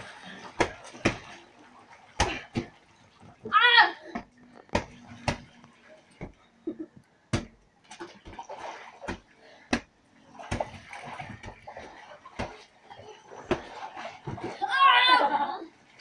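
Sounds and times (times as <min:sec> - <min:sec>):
water splashing in a pool: 0:00.0 - 0:16.0
sharp slaps on water: 0:10.5 - 0:12.7.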